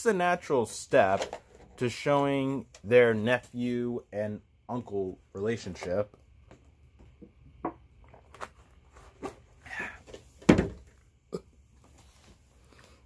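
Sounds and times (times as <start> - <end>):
thud: 10.5 - 10.8.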